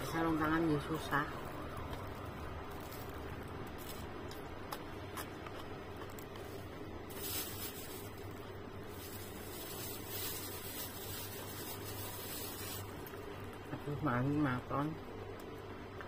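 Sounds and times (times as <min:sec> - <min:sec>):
steady low hum: 0:00.0 - 0:16.0
person chewing food: 0:03.0 - 0:06.8.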